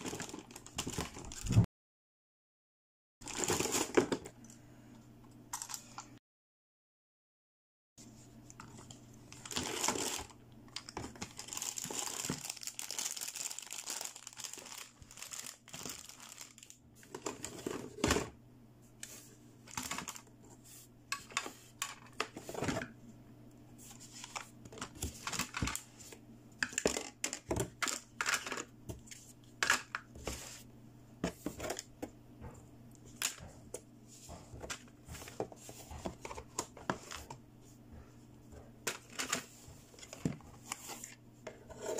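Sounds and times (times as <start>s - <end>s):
plastic wrapping crinkling: 9.3s - 17.5s.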